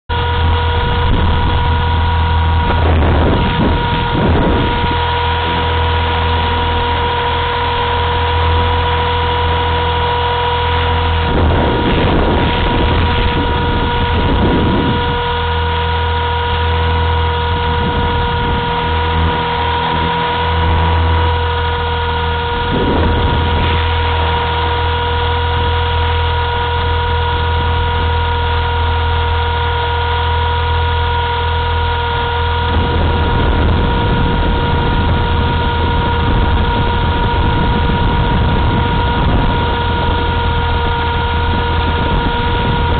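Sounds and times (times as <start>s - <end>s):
low rotor hum: 0.0s - 42.9s
rc helicopter motor whine: 0.1s - 42.9s
wind on microphone: 0.1s - 42.9s.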